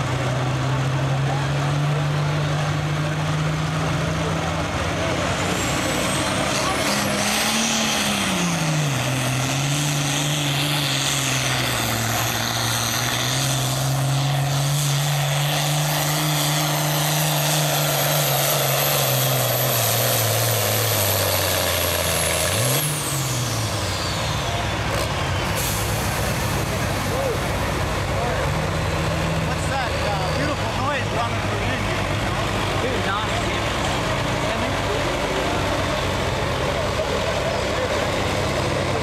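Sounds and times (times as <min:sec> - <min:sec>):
diesel tractor engine lugging: 0:00.0 - 0:39.0.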